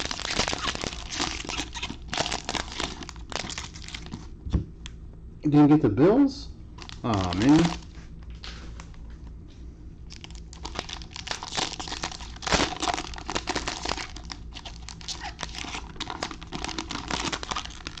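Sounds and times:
foil wrapper crinkling and tearing: 0.0s - 4.3s, 6.8s - 8.0s, 10.1s - 18.0s.

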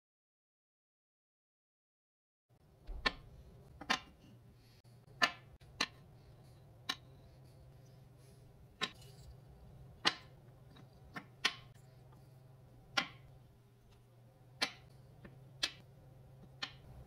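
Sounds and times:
low steady hum: 2.6s - 17.0s
wooden puzzle pieces clacking: 2.9s - 4.2s, 10.0s - 11.7s.

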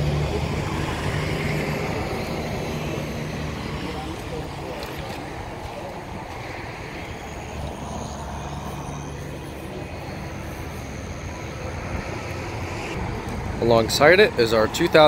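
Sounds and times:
low mechanical drone: 0.0s - 15.0s.

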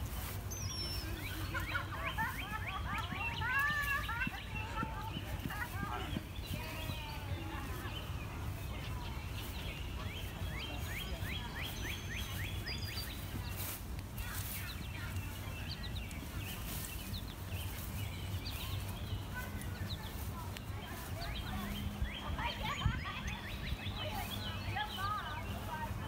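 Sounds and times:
low background noise: 0.0s - 26.0s
small birds chirping: 0.0s - 26.0s.

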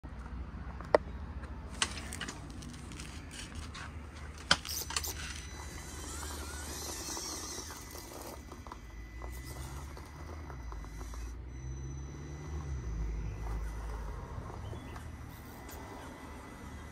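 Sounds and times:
rc truck motor and gear whine: 1.7s - 16.9s.

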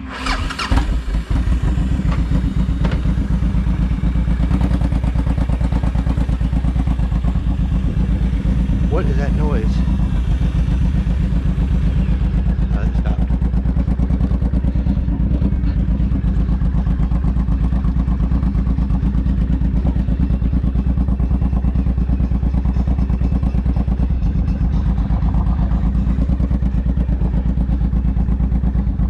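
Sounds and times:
vehicle engine throbbing: 0.0s - 29.0s.

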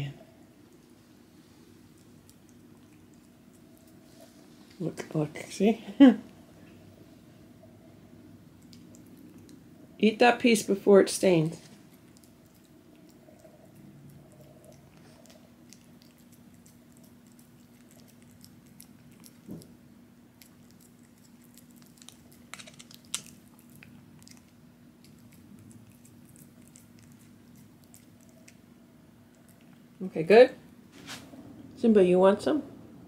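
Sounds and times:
faint low hum: 0.0s - 33.0s
cat chewing crunchy treat: 0.7s - 4.6s, 8.4s - 9.8s, 11.6s - 30.0s.

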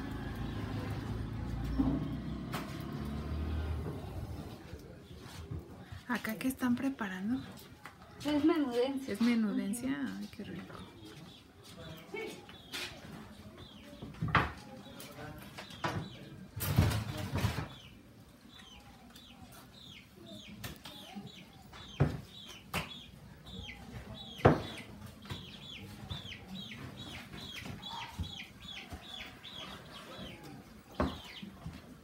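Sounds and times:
chicks peeping: 9.8s - 32.0s.

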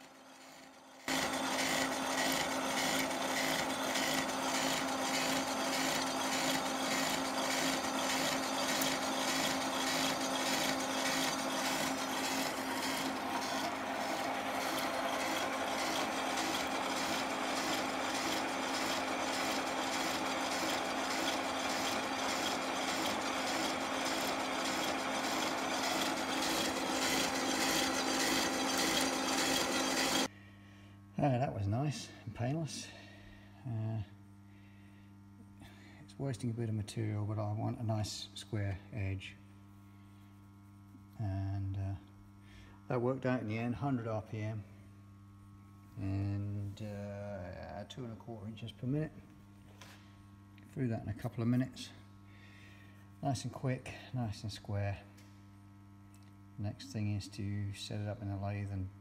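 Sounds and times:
saw grinding through metal: 0.0s - 30.3s
motor hum: 0.0s - 31.1s.

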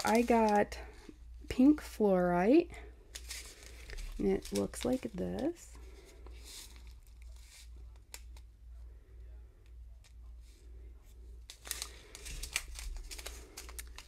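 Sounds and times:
plastic bag crinkling: 0.0s - 1.1s, 3.0s - 8.2s, 11.5s - 14.0s.

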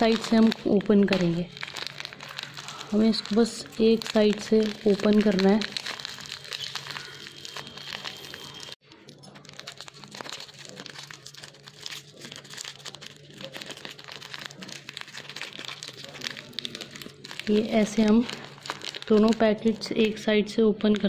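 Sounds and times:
plastic packet crinkling: 0.0s - 21.0s.

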